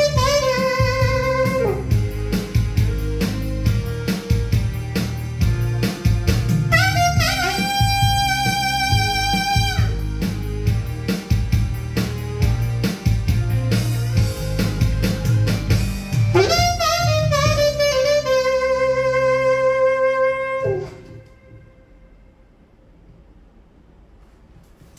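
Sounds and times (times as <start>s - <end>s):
saxophone playing ballad melody: 0.0s - 11.6s, 13.3s - 22.0s
backing track with drums: 0.0s - 19.2s.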